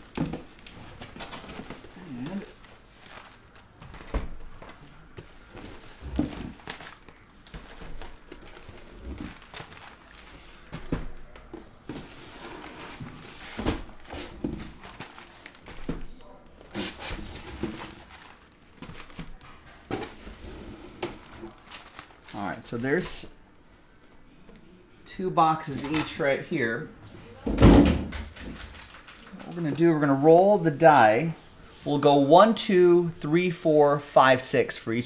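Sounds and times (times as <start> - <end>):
plastic wrap crinkling: 0.0 - 11.4, 13.0 - 19.4, 21.2 - 23.0, 28.4 - 29.6.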